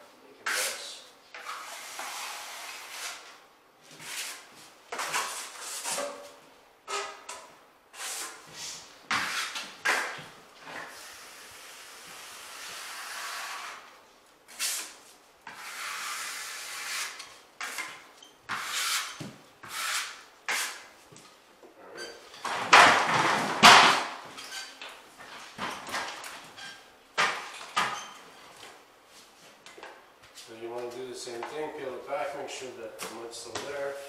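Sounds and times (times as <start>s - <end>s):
taping knife scraping compound: 0.4s - 3.3s, 7.9s - 10.1s, 14.5s - 20.9s.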